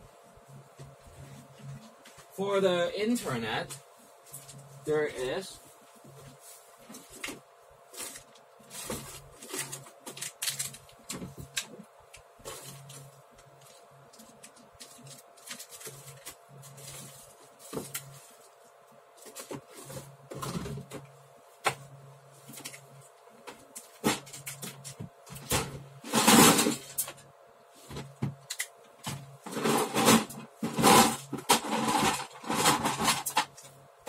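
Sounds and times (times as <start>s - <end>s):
steady low hum: 0.0s - 34.0s
rummaging clicks and rustling: 5.8s - 21.8s.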